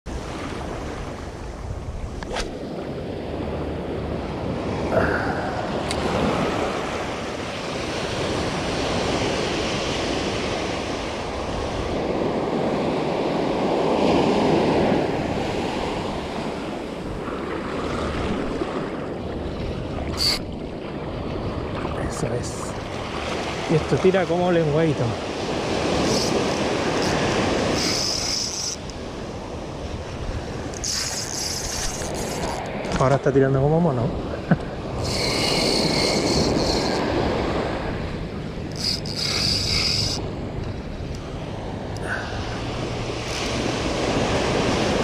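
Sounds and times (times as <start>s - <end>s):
ocean surf breaking: 0.1s - 45.0s.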